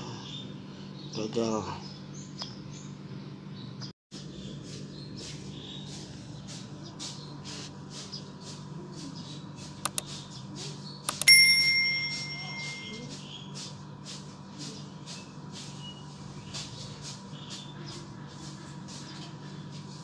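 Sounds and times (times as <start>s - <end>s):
quick clicks: 9.8s - 10.2s, 11.0s - 11.3s
bright bell ding: 11.2s - 13.1s.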